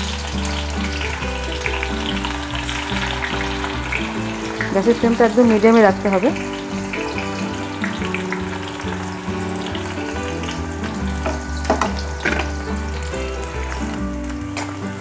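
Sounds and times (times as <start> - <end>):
onions sizzling in oil: 0.0 - 15.0
soft background music: 0.0 - 15.0.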